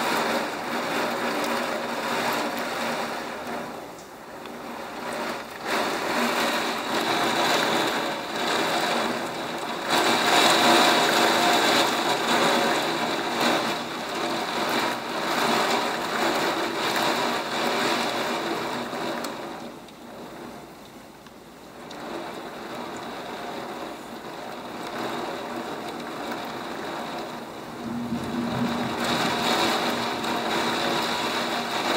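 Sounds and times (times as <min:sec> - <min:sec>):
heavy rain: 0:00.0 - 0:31.9
strong wind gusts in trees: 0:26.7 - 0:31.9.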